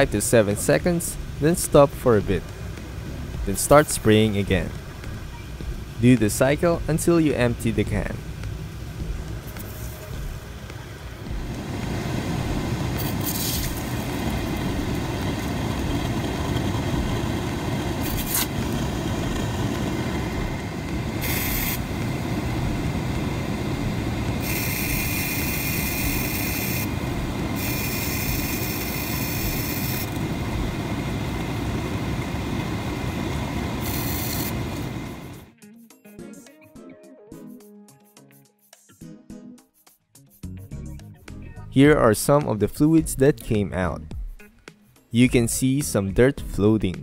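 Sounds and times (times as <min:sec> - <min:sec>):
blower fan running: 0:01.2 - 0:35.5
aerosol spray hissing: 0:09.5 - 0:10.1, 0:11.6 - 0:14.9, 0:17.9 - 0:20.5, 0:21.1 - 0:31.0, 0:32.5 - 0:35.4.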